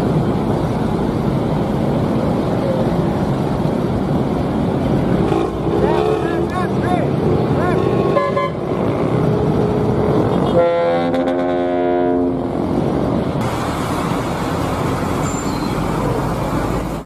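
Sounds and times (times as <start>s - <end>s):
bus engine running: 0.0s - 17.0s
road traffic: 0.0s - 17.0s
multi-tone air horn: 10.5s - 12.4s.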